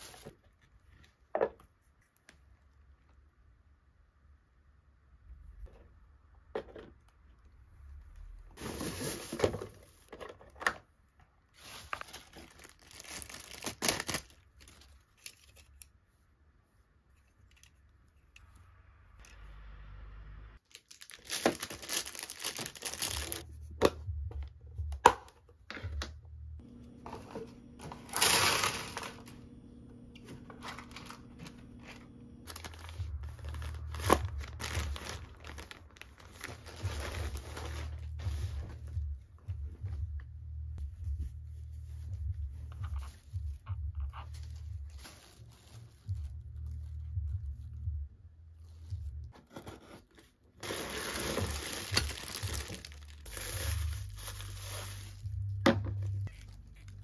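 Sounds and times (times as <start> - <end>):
plastic mailer bag rustling: 8.6 - 10.3, 11.5 - 15.5, 20.6 - 23.4, 27.0 - 29.4, 30.3 - 39.0, 44.2 - 47.0, 50.6 - 55.3
plastic packaging crinkling and tearing: 11.6 - 15.8, 20.6 - 23.4, 28.0 - 29.3, 30.6 - 38.3, 44.2 - 47.1, 50.6 - 55.3, 56.2 - 57.0.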